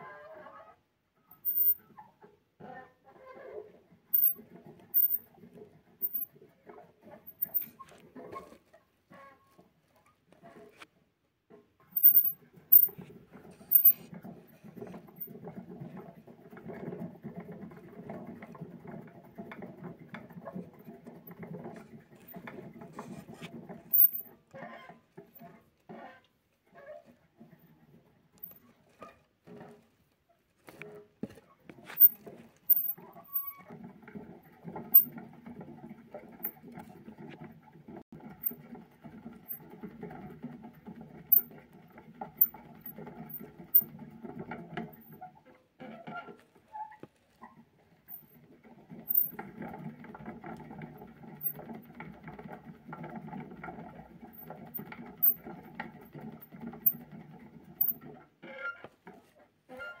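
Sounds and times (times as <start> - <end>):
hamster wheel rattling: 1.4 - 1.8, 4.1 - 7.9, 11.8 - 24.4, 31.8 - 45.4, 47.4 - 58.2.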